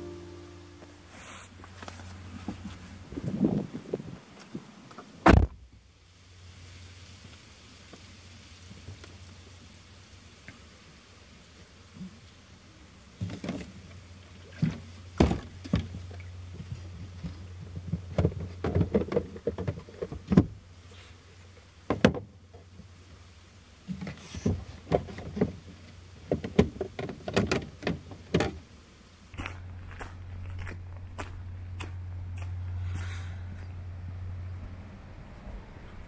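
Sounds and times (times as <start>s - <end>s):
low hum: 0.0s - 3.4s, 29.3s - 36.0s
knocks and rustling in car: 14.6s - 16.0s, 16.6s - 20.6s, 21.9s - 22.3s, 23.9s - 28.6s.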